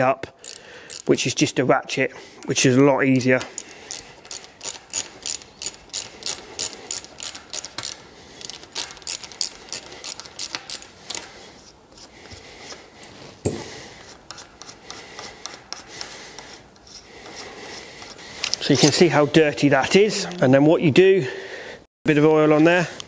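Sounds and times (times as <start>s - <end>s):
socket ratchet clicking: 0.4s - 1.1s, 3.1s - 11.3s.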